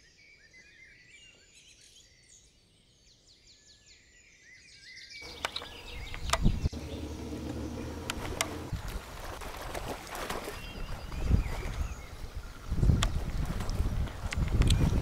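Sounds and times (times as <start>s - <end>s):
songbirds chirping and trilling: 0.0s - 9.4s, 10.3s - 15.0s.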